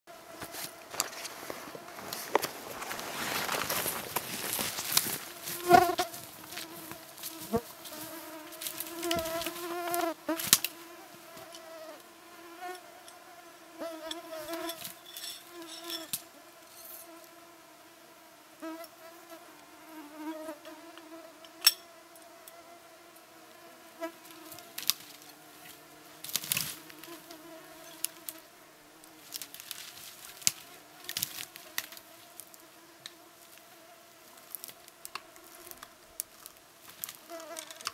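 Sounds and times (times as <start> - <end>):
flying insects buzzing: 0.1 - 37.9
rustles: 0.3 - 11.7, 24.1 - 28.4, 29.0 - 37.9.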